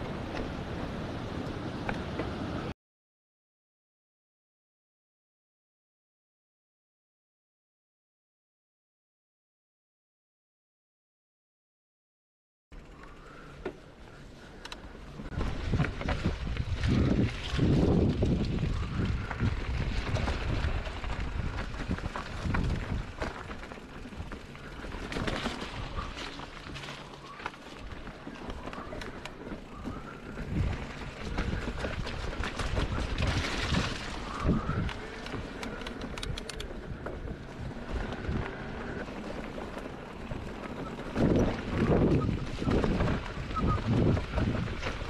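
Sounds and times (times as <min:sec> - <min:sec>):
tyres rolling on trail: 0:00.0 - 0:02.7, 0:12.8 - 0:45.0
wind buffeting microphone: 0:15.2 - 0:26.9, 0:27.8 - 0:45.0
bike clicks and knocks: 0:18.2 - 0:45.0
sharp clicks: 0:34.9 - 0:36.8.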